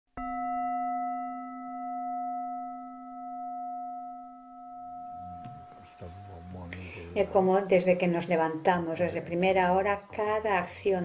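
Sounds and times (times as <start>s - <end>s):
singing bowl ringing: 0.2s - 6.6s.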